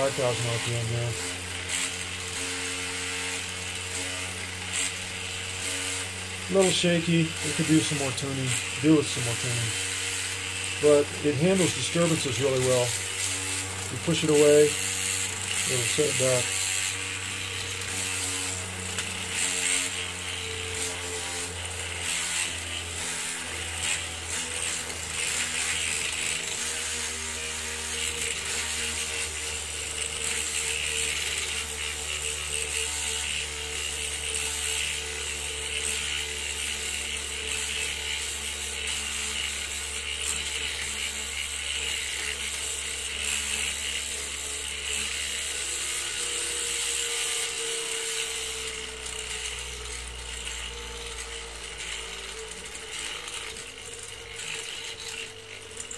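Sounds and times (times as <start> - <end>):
flywheel whirring: 0.0 - 55.9.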